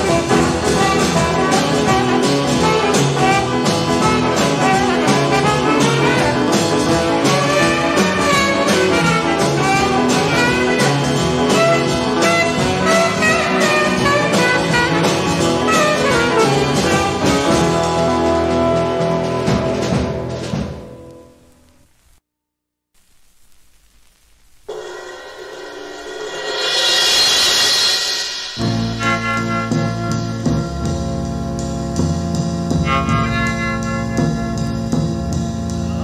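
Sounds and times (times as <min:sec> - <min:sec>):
instrumental jazz with horns: 0:00.0 - 0:21.4, 0:26.5 - 0:36.0.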